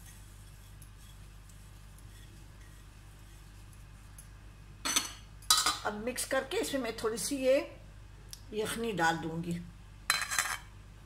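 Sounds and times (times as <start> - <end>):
fingers scratching spices on plate: 0.0 - 4.1
low steady hum: 0.0 - 11.0.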